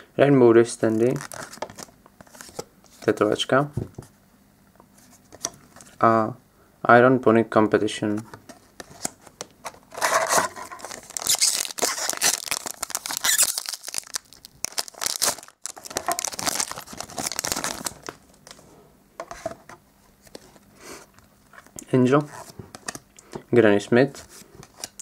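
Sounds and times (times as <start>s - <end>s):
foil wrapper tearing and crinkling: 1.1s - 1.6s, 10.0s - 18.2s.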